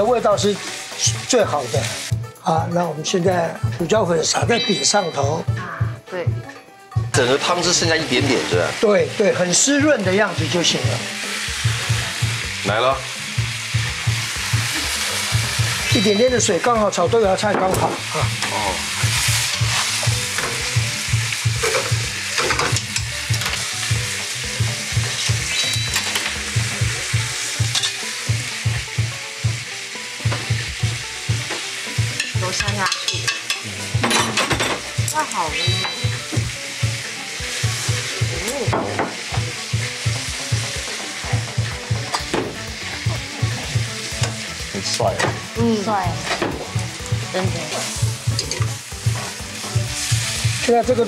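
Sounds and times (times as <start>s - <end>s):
food sizzling in a wok: 0.0s - 51.0s
spatula stirring in a wok: 19.0s - 20.6s.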